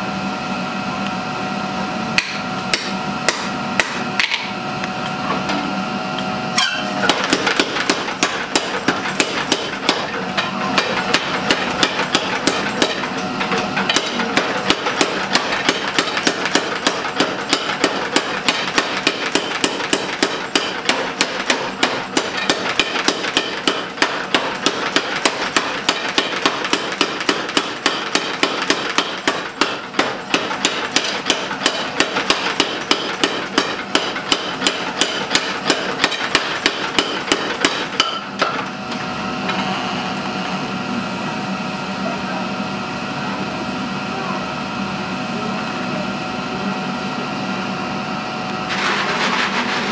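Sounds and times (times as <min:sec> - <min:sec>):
steady machine hum: 0:00.0 - 0:49.9
power hammer blows on iron: 0:06.6 - 0:38.6.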